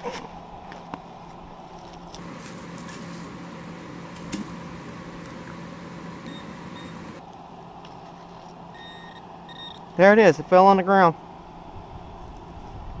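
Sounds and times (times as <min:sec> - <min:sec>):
steady low hum: 0:02.2 - 0:07.2
wash of noise: 0:02.2 - 0:07.2
pinpointer high beeps: 0:06.2 - 0:07.0.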